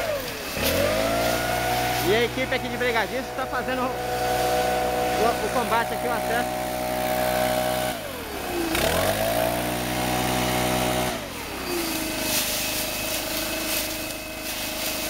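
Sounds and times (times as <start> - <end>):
sharp crackles: 0.0 - 6.4, 11.7 - 15.0
leaf blower engine: 0.0 - 15.0.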